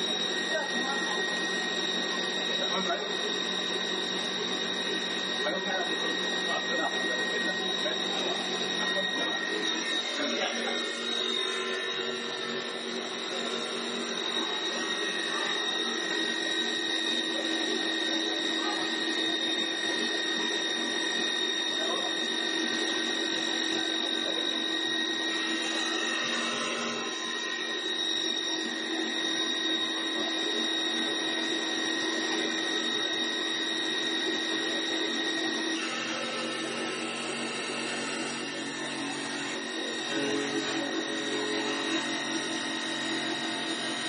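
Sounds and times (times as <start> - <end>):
lathe motor hum and whine: 0.0 - 44.0
cutters shaving wood: 34.4 - 44.0.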